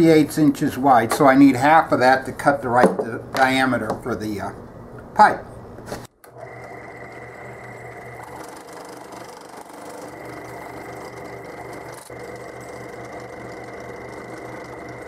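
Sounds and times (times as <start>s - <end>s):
drill press whining: 6.2s - 15.0s.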